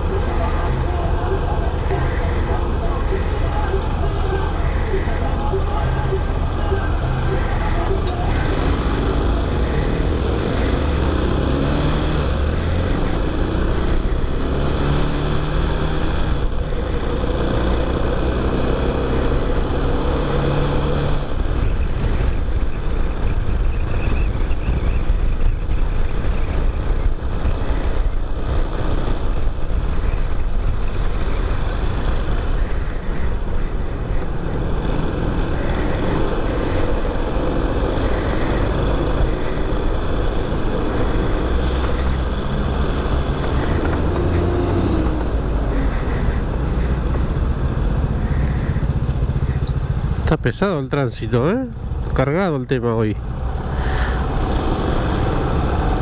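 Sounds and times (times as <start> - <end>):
motorcycle engine accelerating: 0.0 - 50.3, 53.2 - 56.0
wind over microphone: 21.1 - 50.2.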